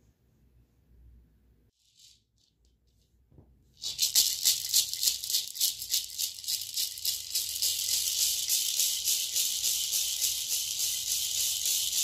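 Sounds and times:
gourd rattle shaken: 0:01.8 - 0:03.0, 0:03.8 - 0:12.0.

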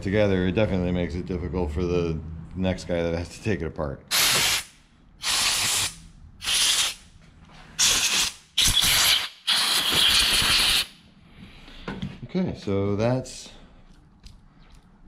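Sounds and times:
compressed air blow gun hissing: 0:04.1 - 0:07.0, 0:07.8 - 0:10.9.

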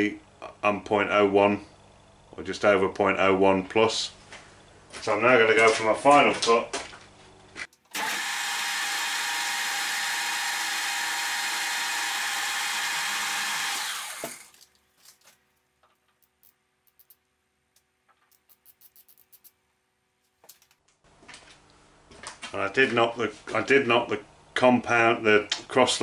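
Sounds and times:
lathe spindle winding down: 0:07.9 - 0:14.5.

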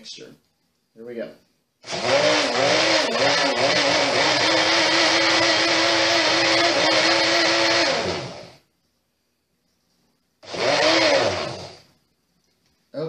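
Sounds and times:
blender motor running: 0:01.8 - 0:08.6, 0:10.4 - 0:11.8
motor winding down: 0:01.9 - 0:08.5, 0:10.5 - 0:11.8.

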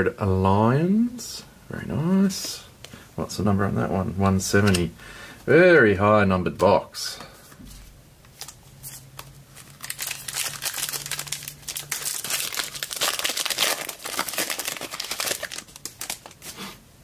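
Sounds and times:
card pack wrapper tearing: 0:08.4 - 0:16.6.

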